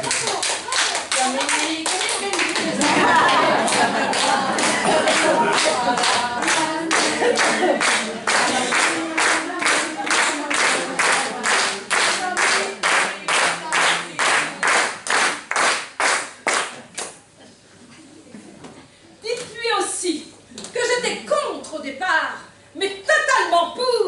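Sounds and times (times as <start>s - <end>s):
group clapping in rhythm: 0.0s - 17.3s
voices singing or calling: 2.6s - 13.3s.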